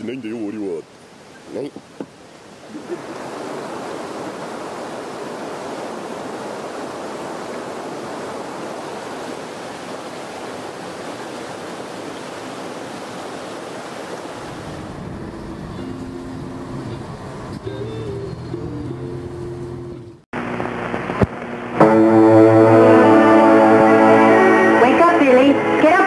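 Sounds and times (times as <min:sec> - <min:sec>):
river rushing over boulders: 0:00.0 - 0:15.2.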